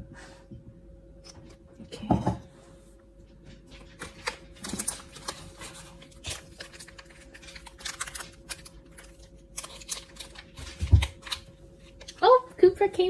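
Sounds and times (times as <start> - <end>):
paper packet crinkling: 3.8 - 12.4.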